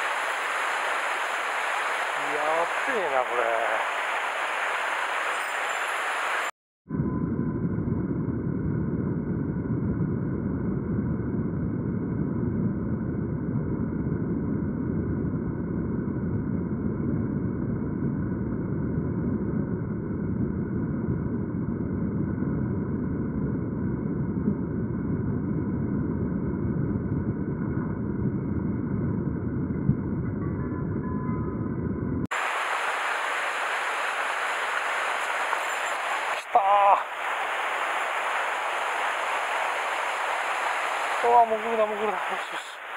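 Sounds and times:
stream rushing: 0.0 - 6.5, 32.3 - 42.9.

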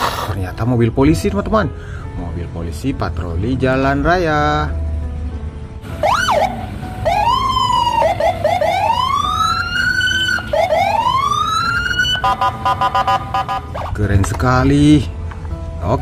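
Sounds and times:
music with an even pulse: 3.4 - 16.0
police siren wailing: 5.9 - 14.0.

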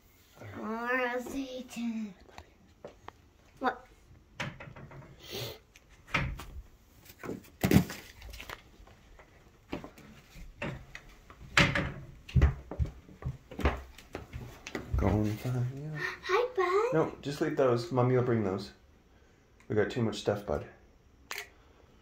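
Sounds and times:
footsteps on wooden stairs: 8.9 - 15.4.

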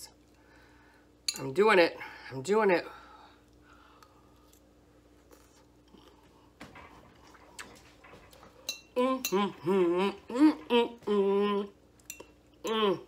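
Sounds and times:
chewing with soft crunches: 3.4 - 6.6.

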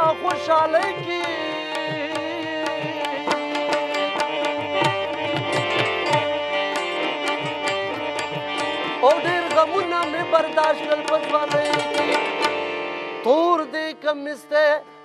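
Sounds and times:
tabla drumming: 0.0 - 13.6
harmonium chords: 0.0 - 15.0.

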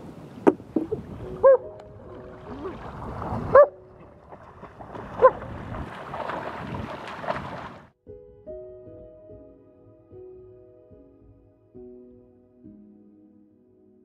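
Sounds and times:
river water splashing: 0.0 - 8.0.

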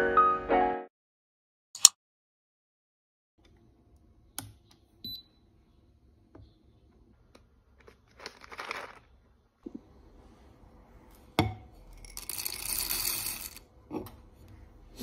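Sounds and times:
plastic bag crinkling: 7.8 - 9.2.

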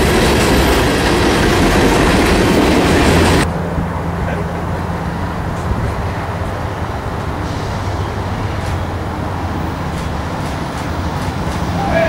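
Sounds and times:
distant vehicle noise: 0.0 - 12.0.

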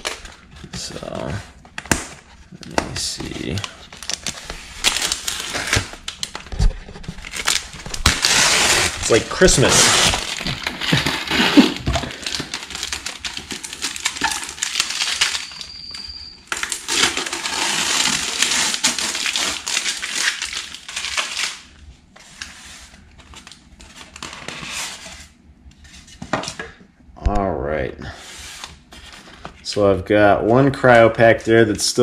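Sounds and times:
packing tape peeling: 3.6 - 6.5, 7.2 - 21.7.

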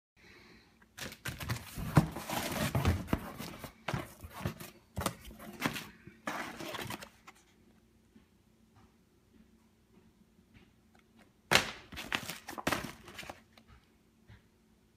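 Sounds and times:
cardboard box being opened: 1.4 - 7.2
packaging crinkling and rustling: 11.9 - 13.5.

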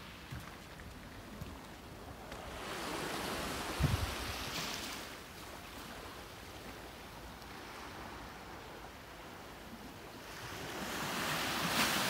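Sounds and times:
waves washing on pebble beach: 10.2 - 12.0.

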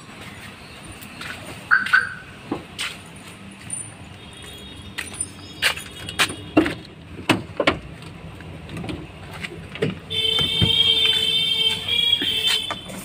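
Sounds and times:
car door clicks and knocks: 9.8 - 10.9.

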